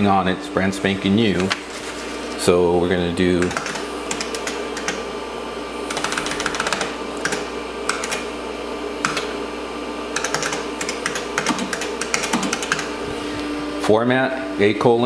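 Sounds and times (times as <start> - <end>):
computer hum: 0.0 - 15.0
computer keyboard keys clicking: 3.4 - 5.0, 5.9 - 8.2, 9.0 - 9.3, 10.2 - 12.9.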